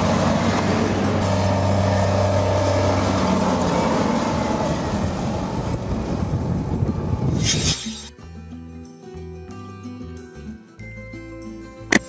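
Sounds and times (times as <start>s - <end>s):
diesel engine rumble: 0.0s - 8.0s.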